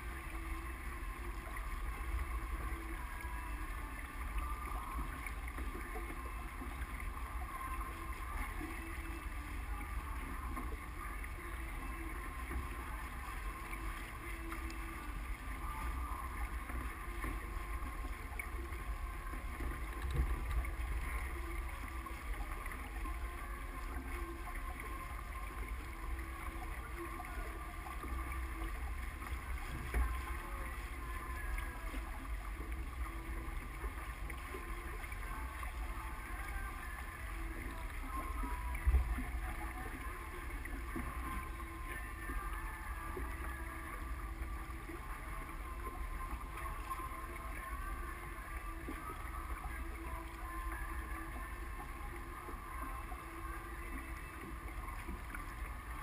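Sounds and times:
water rushing along hull: 0.0s - 56.0s.

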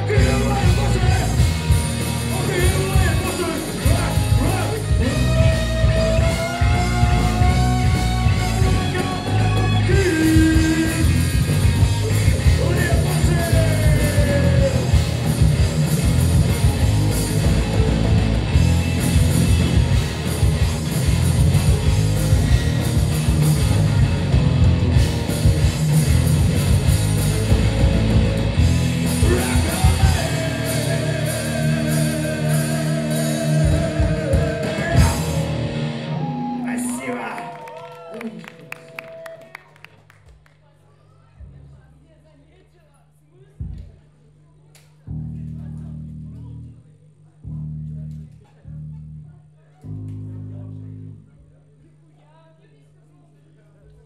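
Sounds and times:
live hard rock band playing: 0.0s - 37.0s
sliding lead guitar line: 0.0s - 37.0s
person singing: 2.4s - 15.1s, 29.0s - 35.7s.

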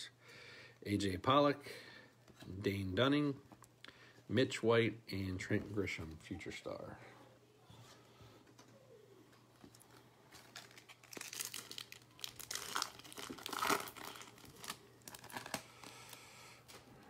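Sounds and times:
foil wrapper tearing and crinkling: 10.3s - 16.2s.

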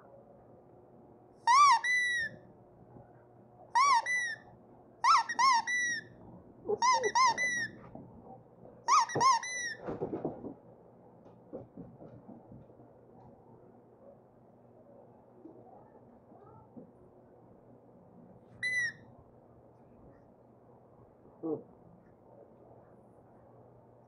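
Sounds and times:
squeaky toy squeaks: 1.4s - 2.4s, 3.8s - 4.4s, 5.0s - 6.1s, 6.7s - 7.8s, 8.9s - 9.8s, 18.6s - 19.0s.

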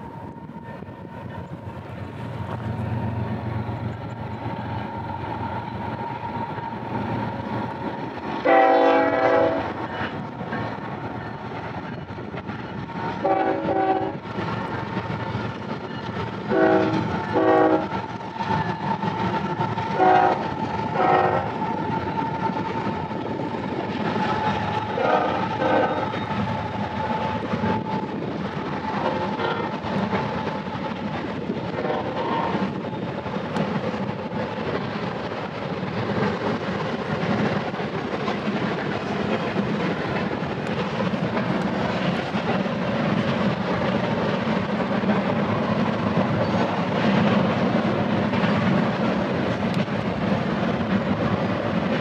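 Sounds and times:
diesel locomotives rumbling: 0.0s - 52.0s
train air horn blasts: 8.4s - 9.8s, 13.2s - 14.2s, 16.5s - 18.0s, 19.9s - 21.6s, 24.8s - 26.2s, 31.8s - 32.7s.

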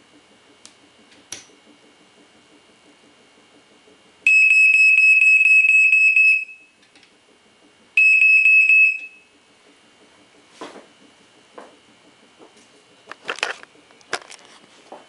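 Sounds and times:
smoke alarm beeping: 4.3s - 6.8s, 8.0s - 9.3s.

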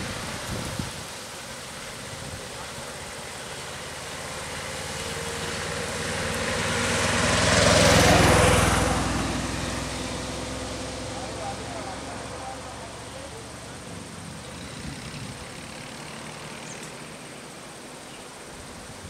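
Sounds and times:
vehicle driving past: 3.2s - 17.6s.

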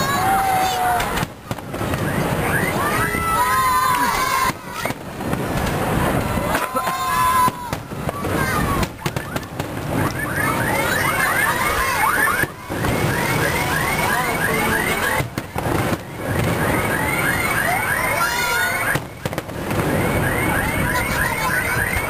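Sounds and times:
fireworks exploding: 0.0s - 22.0s.

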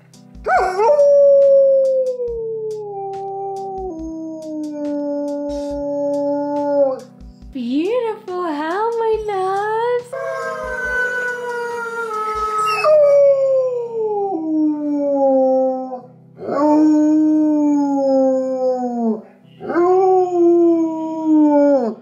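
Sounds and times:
recorded wolf howls: 0.5s - 7.0s, 10.2s - 22.0s
dog howling: 10.2s - 22.0s.

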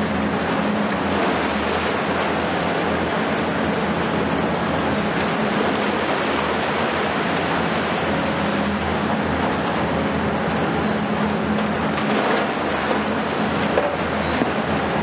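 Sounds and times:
excavator diesel engines droning: 0.0s - 15.0s.

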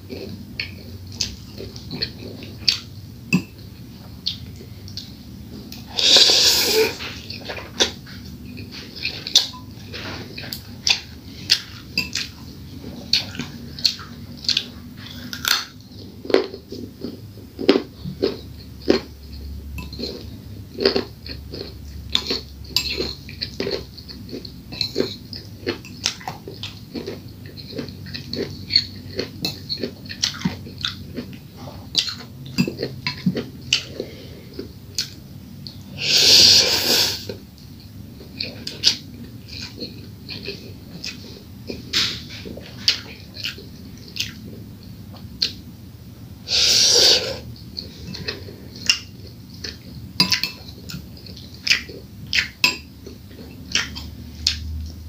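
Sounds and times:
chewing and wet mouth sounds: 0.0s - 45.7s, 46.5s - 55.0s
slurping noodles: 5.9s - 7.2s, 36.0s - 37.3s, 46.5s - 47.5s.

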